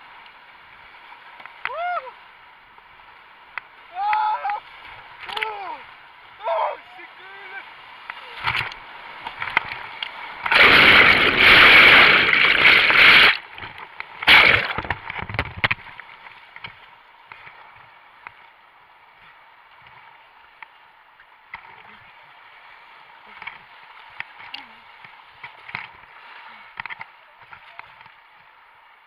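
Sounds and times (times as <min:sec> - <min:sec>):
whitewater rapids rushing: 0:03.8 - 0:13.6
water breaking over camera: 0:04.0 - 0:16.8.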